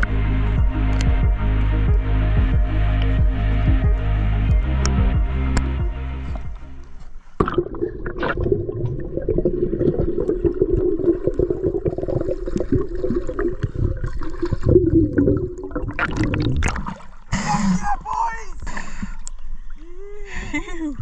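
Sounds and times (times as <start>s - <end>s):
underwater rushing and bubbling: 4.8s - 19.9s
water splashes: 6.3s - 20.0s
crackling clicks: 19.2s - 19.5s.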